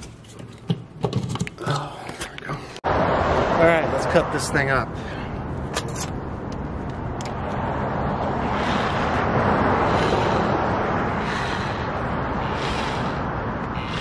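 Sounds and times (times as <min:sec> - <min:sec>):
car passing on road: 0:02.8 - 0:14.0.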